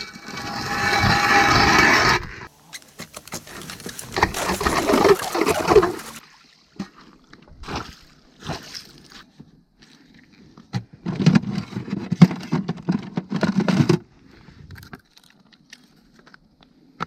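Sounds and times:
ice auger grinding through ice: 0.0 - 6.2.

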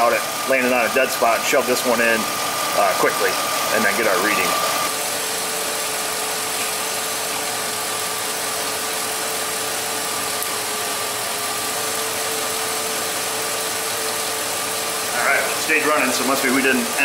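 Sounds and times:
steady whine: 0.0 - 7.9
car engine idling: 0.0 - 17.0.

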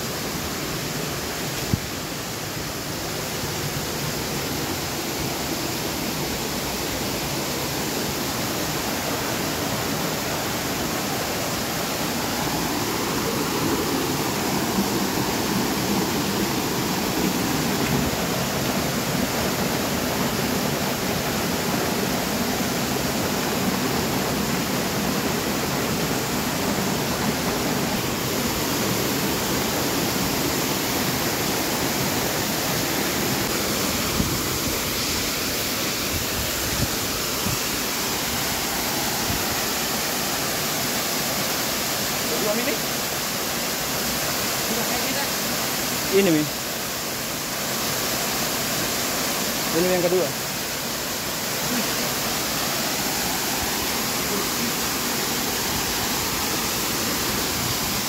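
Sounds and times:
small waterfall rushing: 0.0 - 58.0
stream tumbling among rocks: 8.6 - 40.9.

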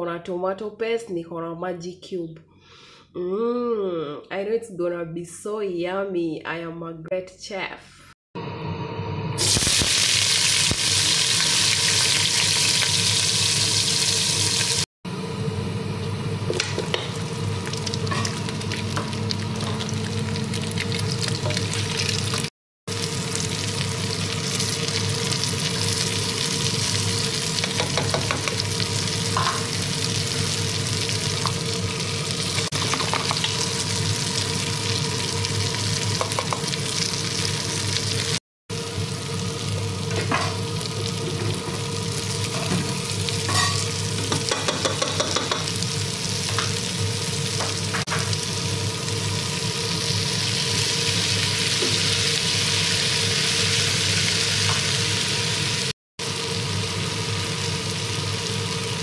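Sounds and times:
food sizzling in hot oil: 9.0 - 14.9, 16.0 - 59.0.

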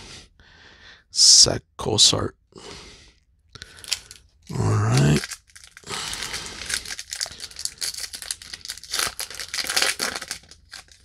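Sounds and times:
foil wrapper crinkling: 3.7 - 4.2, 4.9 - 11.0
short wordless vocal sound: 4.5 - 5.2.

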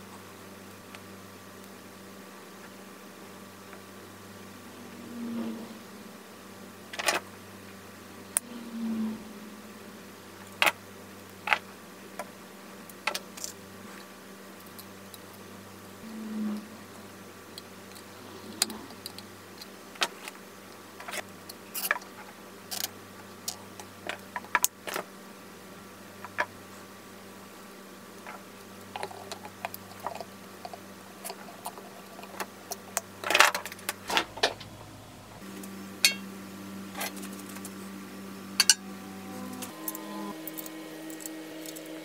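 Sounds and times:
faint steady hum: 0.0 - 42.0.

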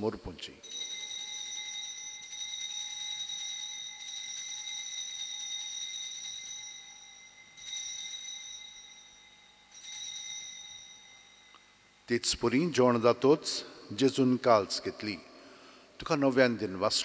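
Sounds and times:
altar bell ringing: 0.6 - 12.7.

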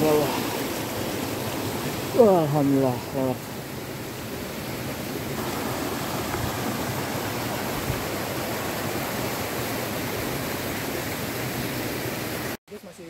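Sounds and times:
water rushing over rocks: 0.0 - 13.0.

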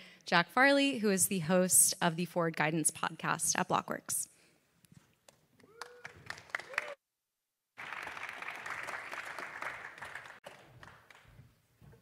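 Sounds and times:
audience applauding: 5.6 - 7.0, 7.8 - 11.3.

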